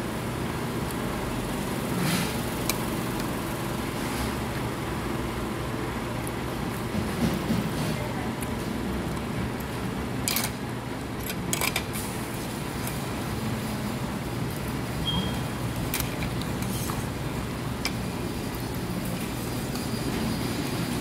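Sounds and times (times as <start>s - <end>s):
short high beep: 15.0s - 15.4s.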